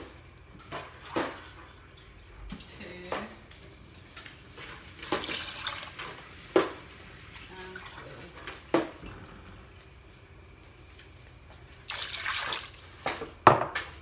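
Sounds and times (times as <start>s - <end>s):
water splashing into pot: 4.6s - 6.8s, 11.8s - 13.0s.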